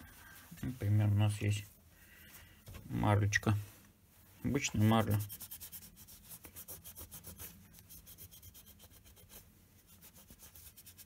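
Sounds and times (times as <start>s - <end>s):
gauze rubbing on a model: 4.1s - 11.0s.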